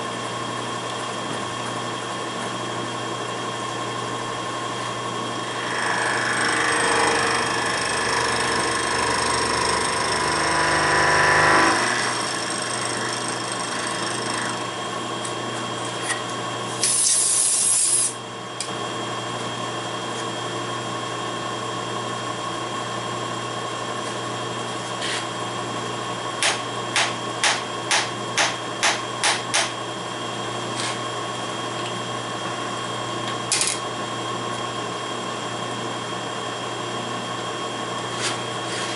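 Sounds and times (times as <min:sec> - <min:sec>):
spindle humming: 0:05.4 - 0:13.1
milling machine cutting metal: 0:05.4 - 0:14.7.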